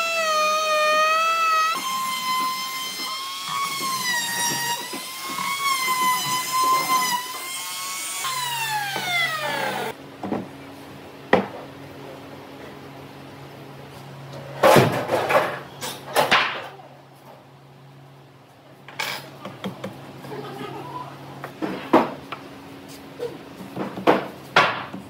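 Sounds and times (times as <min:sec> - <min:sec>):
power tool motor whining: 0:00.0 - 0:10.0.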